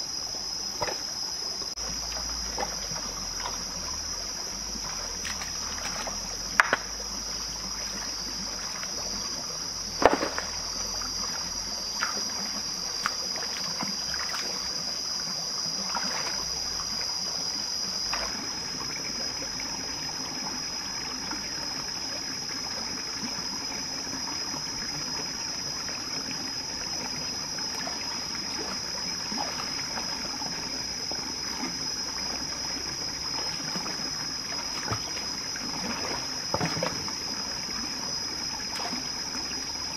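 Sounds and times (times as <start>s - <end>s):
high-pitched insect drone: 0.0s - 39.9s
stream trickling over rocks: 0.0s - 39.9s
sharp knocks on stone: 6.6s - 6.9s.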